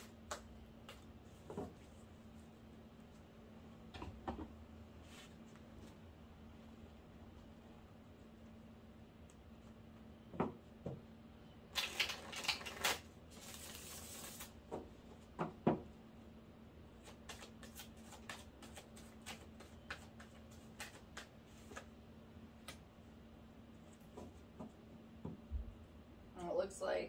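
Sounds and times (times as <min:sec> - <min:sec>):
cards riffle shuffling: 0:11.8 - 0:14.5, 0:17.0 - 0:21.9.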